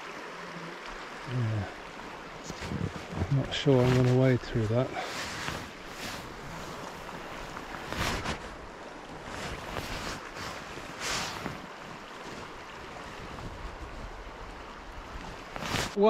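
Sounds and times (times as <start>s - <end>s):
legs wading through water: 0.0s - 16.0s
rushing river water: 0.0s - 16.0s
wind on microphone: 5.4s - 16.0s.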